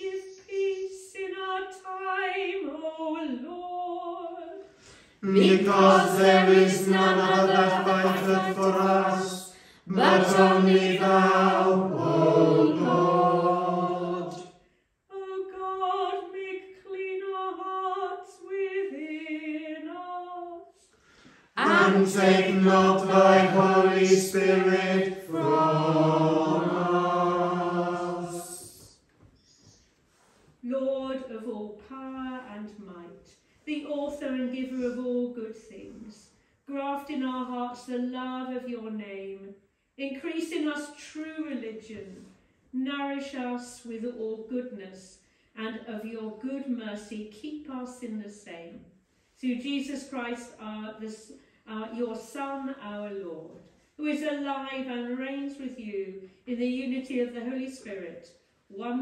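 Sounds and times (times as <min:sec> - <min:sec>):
congregation singing response: 0:05.2 - 0:14.6, 0:21.6 - 0:28.9
woman singing: 0:15.1 - 0:20.6.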